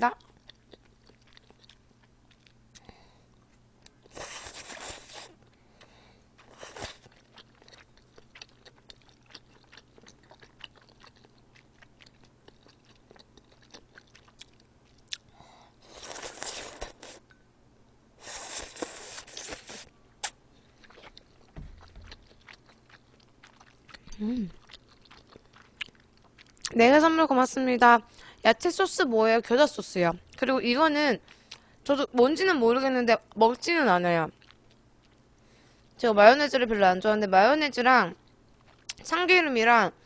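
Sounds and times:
wet chewing clicks: 0.1s - 2.9s, 3.8s - 15.3s, 18.6s - 26.8s, 38.3s - 39.1s
noodles slurping: 18.2s - 19.9s.

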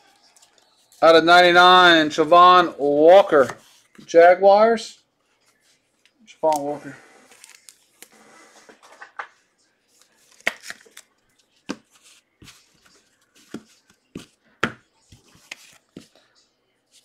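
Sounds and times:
cards rustling and sliding: 6.4s - 9.2s, 9.9s - 16.2s
cards tapping on tabletop: 13.4s - 14.8s.

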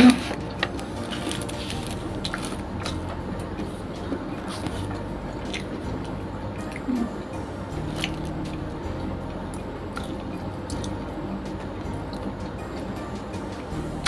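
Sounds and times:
low steady hum: 0.0s - 14.0s
eating clicks and smacks: 7.8s - 11.0s.

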